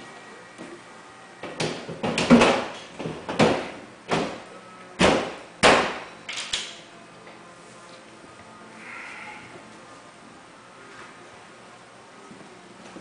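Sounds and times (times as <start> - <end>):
wooden cabinet knocks: 1.4 - 4.4.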